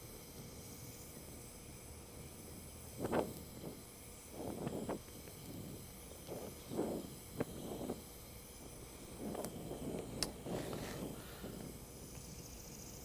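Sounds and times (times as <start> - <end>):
torch flame hissing: 0.0 - 13.0
soft puffs: 4.4 - 12.6.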